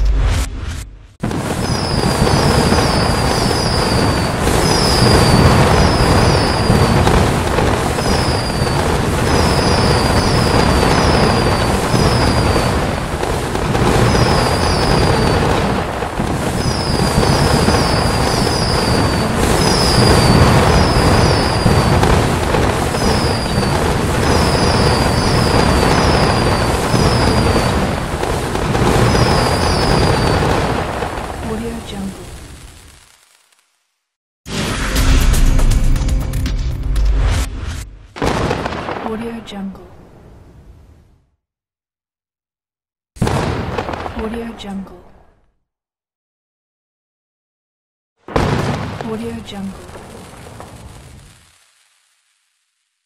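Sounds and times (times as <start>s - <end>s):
fireworks bursting and crackling: 1.2s - 36.3s, 38.2s - 39.4s, 43.2s - 44.5s, 48.2s - 53.0s
high falling whistles: 1.6s - 7.1s, 7.8s - 12.9s, 13.9s - 15.5s, 16.5s - 22.1s, 22.8s - 28.0s, 28.8s - 30.8s.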